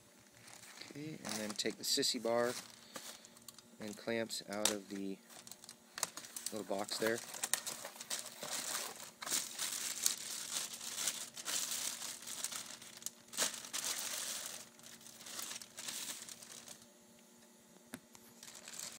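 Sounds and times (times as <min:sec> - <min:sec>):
plastic packaging crinkling: 0:00.2 - 0:16.9, 0:18.3 - 0:18.9.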